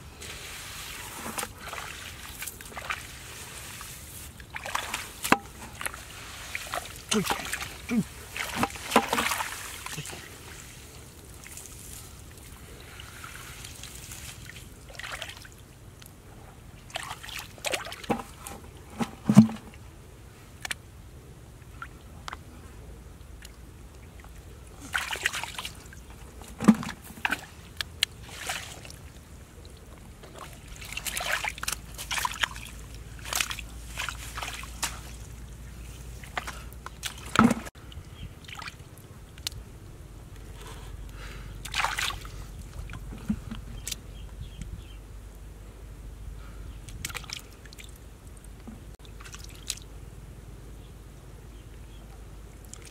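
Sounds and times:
wet straw rustling: 0:00.2 - 0:15.4, 0:30.6 - 0:37.8
hands splashing in muddy water: 0:00.7 - 0:12.1, 0:24.8 - 0:25.9, 0:30.3 - 0:37.7, 0:41.6 - 0:42.5.

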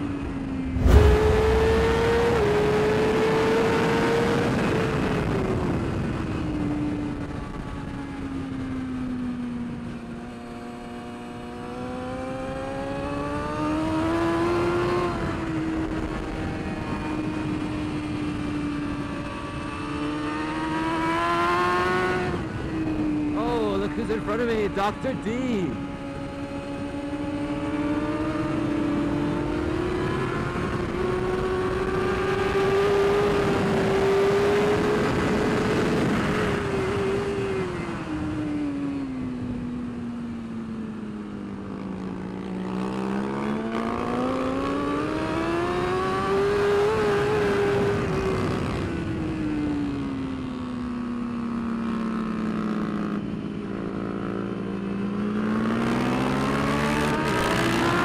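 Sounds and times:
wind noise: 0:00.0 - 0:08.8, 0:13.0 - 0:39.9
motorcycle engine running hard: 0:00.0 - 0:58.0.

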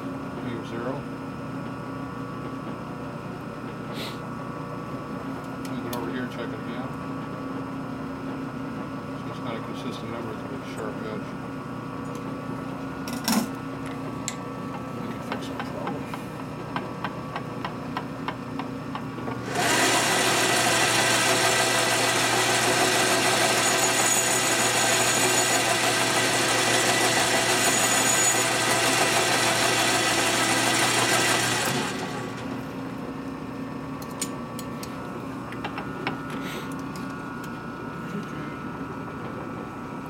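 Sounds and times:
electric power tool running: 0:19.4 - 0:32.8.

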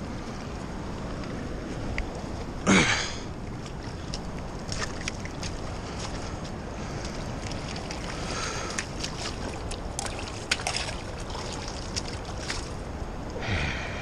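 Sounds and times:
river water rushing: 0:00.0 - 0:14.0
water splashes and knocks: 0:03.6 - 0:12.9.

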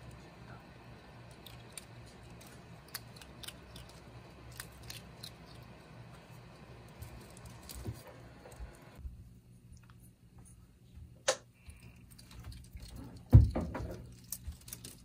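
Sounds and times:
low steady hum: 0:00.0 - 0:15.0
monkey crunching a treat: 0:01.0 - 0:06.3, 0:11.6 - 0:15.0.

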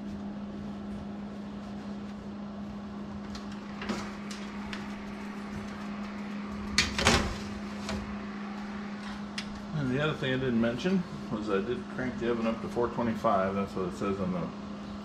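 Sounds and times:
steady low hum: 0:00.0 - 0:15.0
oven door shutting: 0:03.2 - 0:04.9, 0:06.6 - 0:08.2.

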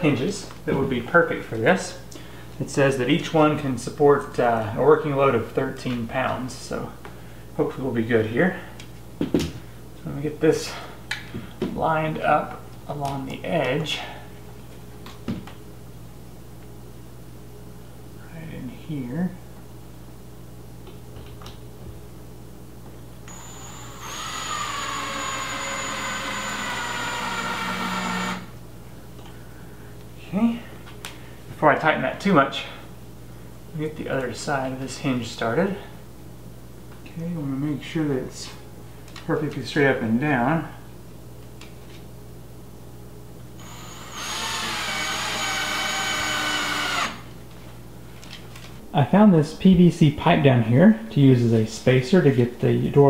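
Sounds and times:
cordless drill motor whine: 0:23.3 - 0:28.5, 0:43.6 - 0:47.3.

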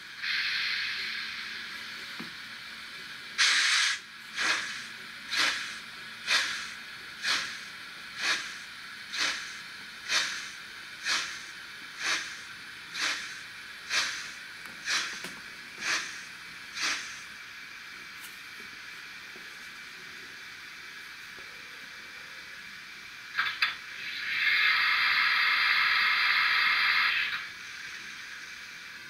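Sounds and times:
steam locomotive chuffs: 0:00.0 - 0:18.2, 0:19.1 - 0:29.0
steady steam hiss: 0:00.0 - 0:29.0
loud steam burst: 0:00.2 - 0:01.6, 0:03.4 - 0:15.2, 0:15.8 - 0:17.3, 0:23.3 - 0:28.8.

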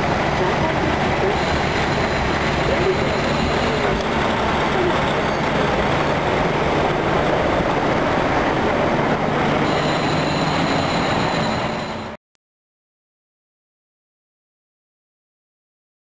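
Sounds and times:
diesel engine running: 0:00.0 - 0:12.1
train wheels rolling on rails: 0:00.0 - 0:12.2
faint high whine: 0:01.2 - 0:04.1, 0:09.6 - 0:12.2.

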